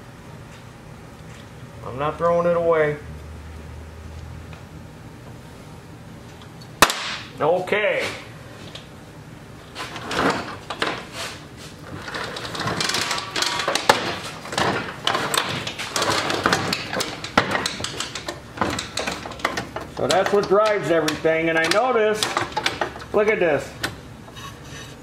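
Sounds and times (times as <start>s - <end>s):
heavy chassis clunking on steel bench: 11.9s - 24.0s.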